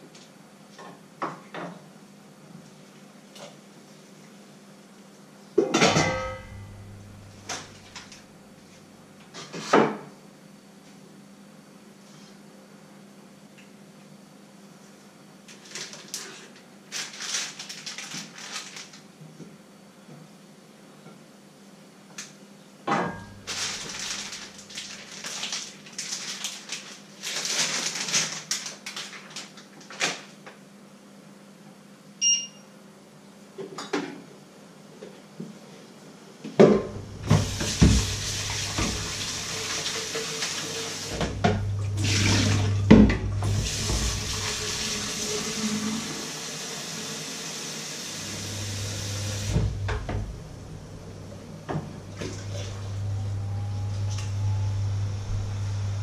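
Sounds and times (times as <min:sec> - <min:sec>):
kitchen rustling and clatter: 0:05.6 - 0:10.0, 0:15.5 - 0:19.2, 0:22.9 - 0:30.4
short beep: 0:32.2 - 0:32.7
tap water running into jug: 0:37.2 - 0:50.1.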